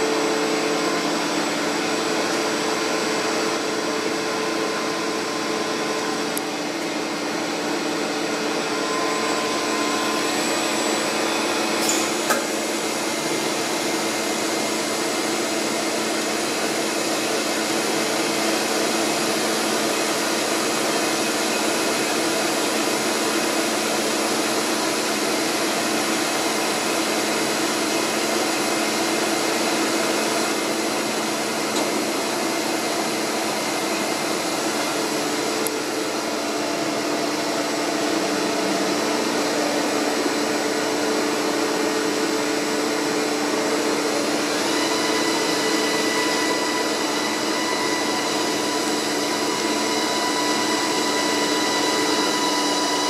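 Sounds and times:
machining center whirring: 0.0s - 53.0s
short click: 11.8s - 12.5s.

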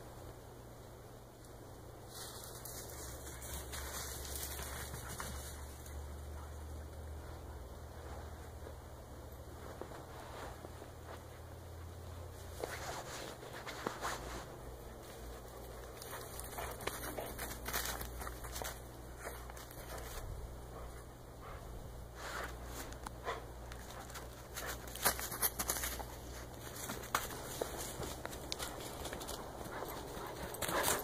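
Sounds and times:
footsteps crunching through snow: 12.4s - 20.3s, 23.9s - 31.0s.

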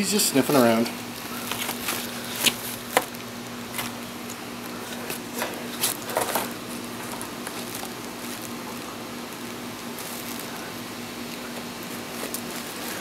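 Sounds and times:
faint steady hum: 0.0s - 13.0s
plastic packing crinkling: 0.5s - 13.0s.

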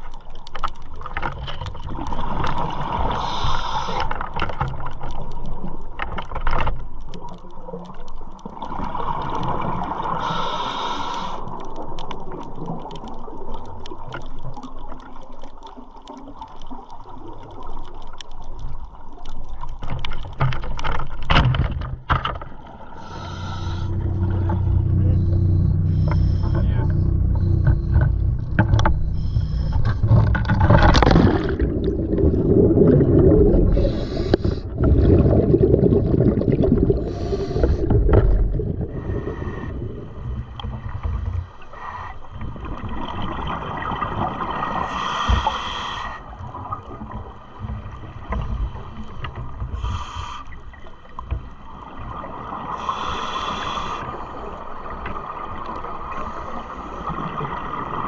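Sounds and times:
rumbling rush of water and bubbles: 0.0s - 58.0s
scuba regulator breathing: 3.0s - 4.4s, 10.1s - 11.6s, 22.9s - 30.4s, 33.5s - 35.0s, 36.9s - 38.2s, 38.8s - 40.2s, 41.6s - 42.4s, 44.6s - 46.4s, 48.6s - 50.9s, 52.7s - 54.6s
exhaled bubbles bursting: 30.2s - 40.6s.

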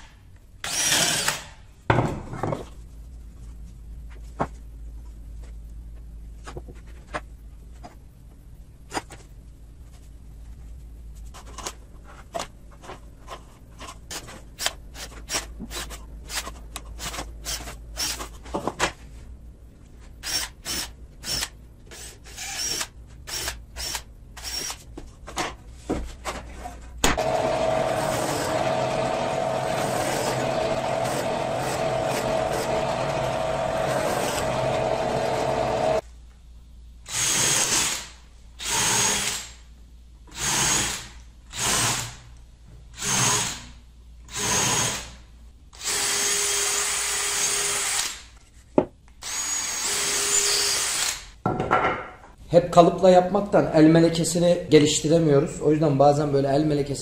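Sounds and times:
cordless drill bursts: 0.6s - 1.6s, 20.2s - 24.8s, 27.2s - 36.0s, 45.8s - 48.3s, 49.2s - 51.4s
power tool running: 27.2s - 36.0s.

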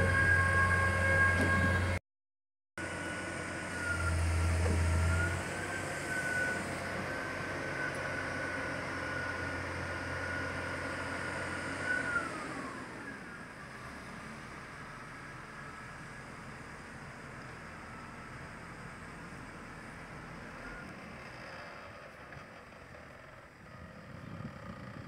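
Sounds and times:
hydraulic high whine: 0.0s - 2.0s, 2.8s - 13.6s
low engine hum: 2.8s - 25.0s.

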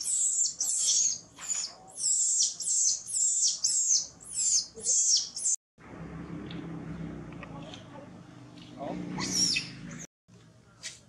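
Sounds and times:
infant monkey screaming: 9.2s - 9.8s.

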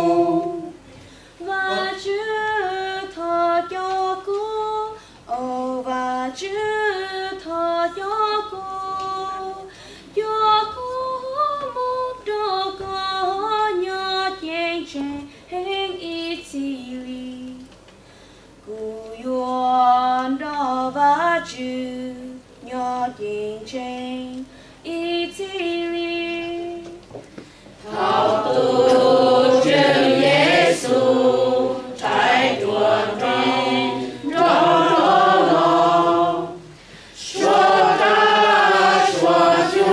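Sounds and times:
mixed choir singing: 0.0s - 0.8s, 27.8s - 39.9s
woman singing unaccompanied: 0.0s - 17.8s, 18.6s - 27.1s, 36.3s - 39.9s.

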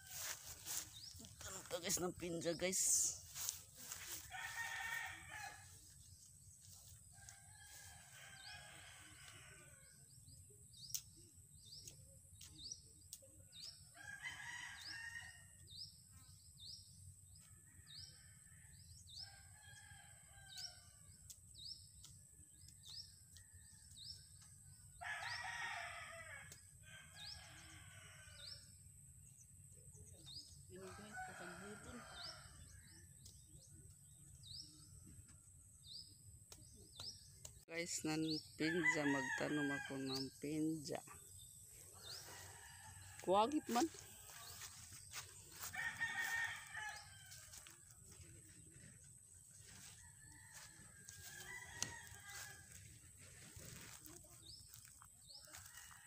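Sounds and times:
faint rooster crowing: 3.4s - 5.9s, 6.7s - 9.9s, 41.9s - 48.3s, 49.6s - 54.2s, 54.8s - 56.0s.

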